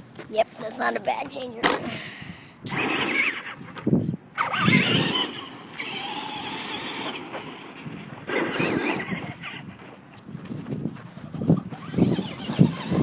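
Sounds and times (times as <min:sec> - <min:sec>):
toy truck drivetrain whining: 0:02.7 - 0:09.8, 0:11.4 - 0:13.0.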